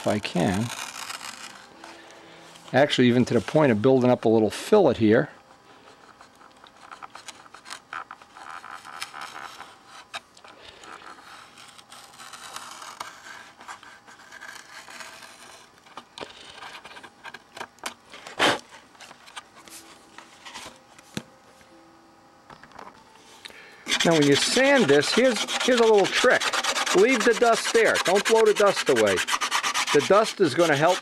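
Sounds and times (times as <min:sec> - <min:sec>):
plastic film tearing: 0:00.0 - 0:01.8, 0:06.6 - 0:09.7, 0:10.6 - 0:18.7
knife scraping plastic film: 0:00.0 - 0:03.5, 0:05.9 - 0:20.8, 0:23.9 - 0:31.0.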